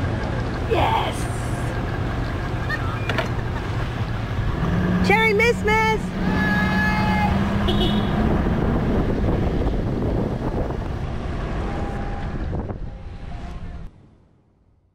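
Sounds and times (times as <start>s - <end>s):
vehicle rumbling: 0.0s - 14.9s
horn-like tone: 11.6s - 13.9s.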